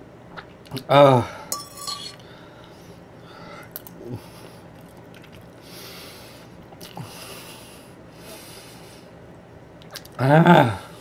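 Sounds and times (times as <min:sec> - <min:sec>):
person eating quietly: 0:06.6 - 0:07.2.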